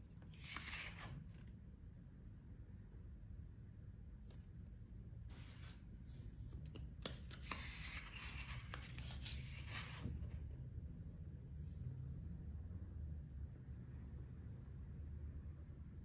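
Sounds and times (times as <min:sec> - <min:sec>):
paper rustling and rubbing: 0:00.2 - 0:01.4, 0:05.3 - 0:10.4.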